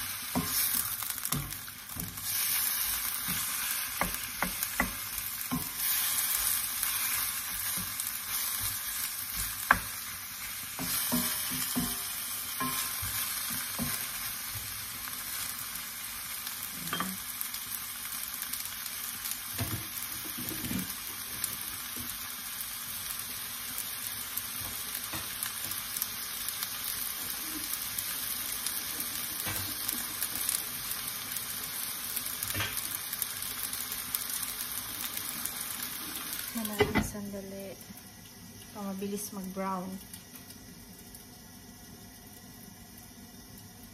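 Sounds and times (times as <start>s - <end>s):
pork sizzling in a wok: 0.0s - 43.9s.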